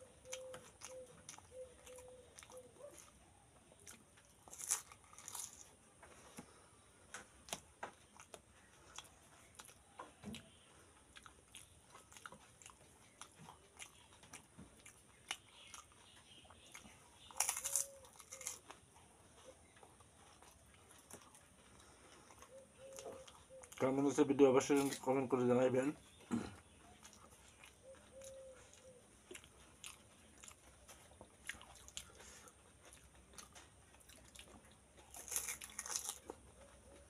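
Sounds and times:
mouth chewing: 0:00.0 - 0:37.0
crunching crisp shells: 0:03.8 - 0:06.1, 0:11.9 - 0:19.0, 0:27.0 - 0:37.0.

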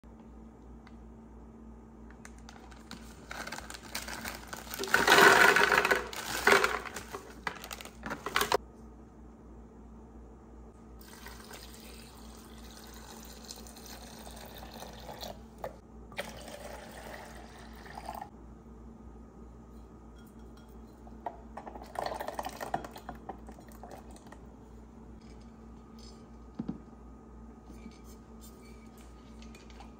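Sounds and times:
plastic bag crinkling: 0:02.3 - 0:08.6.

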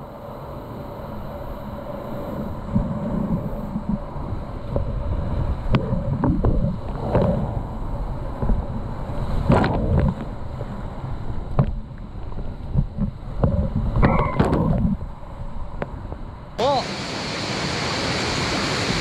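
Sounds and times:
wind buffeting microphone: 0:00.0 - 0:16.5
rushing whitewater: 0:16.6 - 0:19.0.

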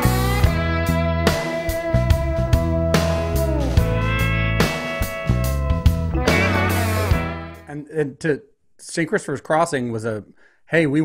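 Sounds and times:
guitar note sliding down: 0:00.0 - 0:07.7
guitar-led instrumental music: 0:00.0 - 0:07.7.

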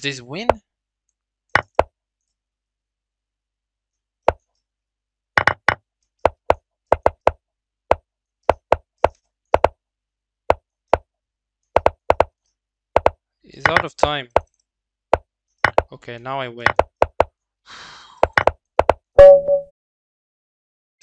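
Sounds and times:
chess move wooden knocks: 0:01.6 - 0:01.9, 0:05.4 - 0:09.8, 0:11.8 - 0:12.4, 0:13.0 - 0:14.5, 0:15.6 - 0:16.0, 0:16.6 - 0:17.3, 0:18.2 - 0:19.0.

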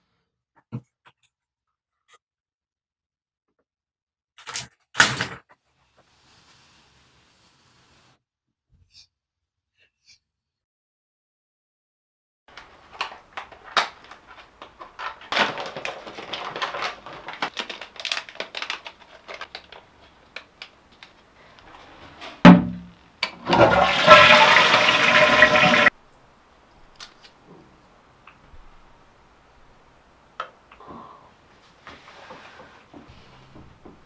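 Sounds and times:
cardboard and foil crinkling: 0:12.5 - 0:22.0
toilet flushing: 0:22.5 - 0:25.9.

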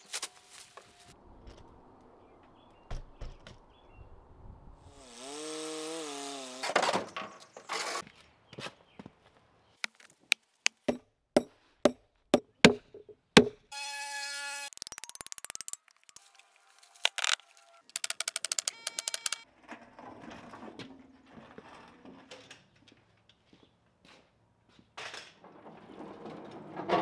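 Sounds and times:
pitched sound dipping and rising: 0:14.7 - 0:16.2.

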